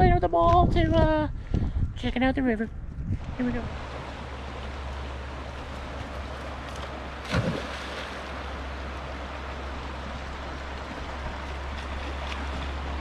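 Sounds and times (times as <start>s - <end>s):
low steady rumble: 0.0s - 13.0s
river rushing over rocks: 3.7s - 13.0s.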